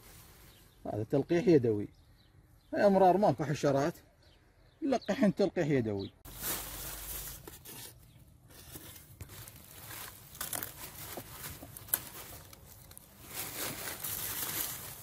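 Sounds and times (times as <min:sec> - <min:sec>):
dry leaves rustling and crackling: 0:00.0 - 0:00.7, 0:06.3 - 0:07.8, 0:08.5 - 0:15.0.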